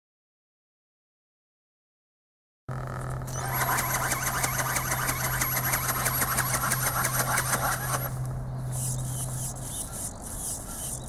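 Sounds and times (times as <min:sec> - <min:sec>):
electric motor whine: 0:02.7 - 0:08.5
mechanical wings flapping: 0:03.1 - 0:09.4.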